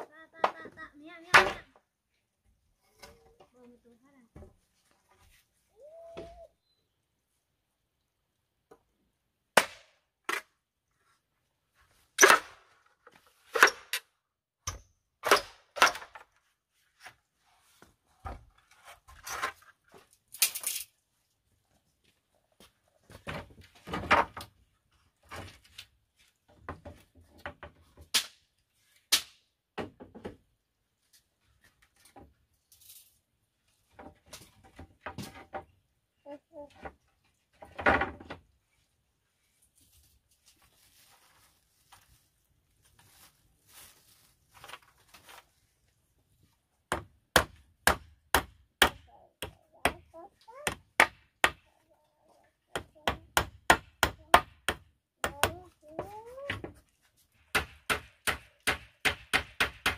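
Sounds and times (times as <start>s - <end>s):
bamboo being chopped: 9.6s - 10.5s, 29.1s - 29.4s, 57.5s - 59.9s.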